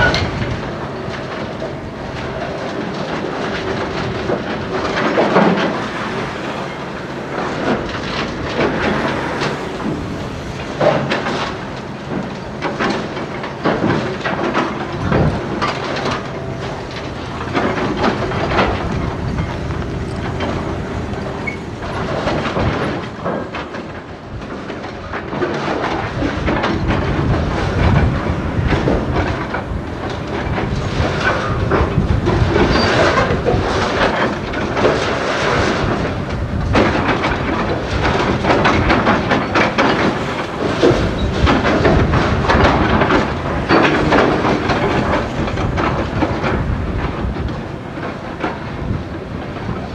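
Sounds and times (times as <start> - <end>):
diesel trucks running: 0.0 - 49.9
metal clanks and knocks: 0.0 - 49.9
truck driving past: 5.0 - 12.6.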